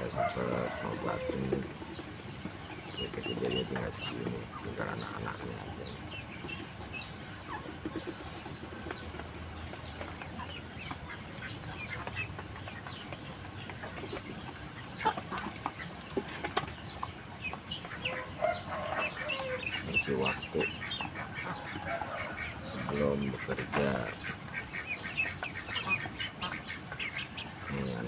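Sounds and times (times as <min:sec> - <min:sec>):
chickens clucking: 0:00.0 - 0:28.0
ducks calling: 0:00.0 - 0:28.0.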